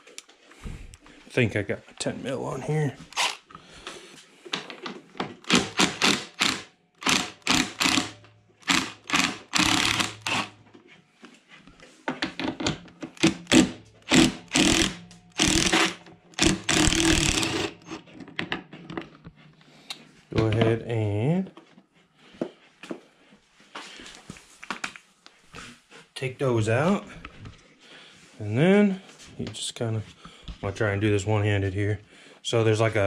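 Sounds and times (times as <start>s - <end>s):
power drill running in bursts: 5.4s - 10.5s, 13.2s - 18.0s.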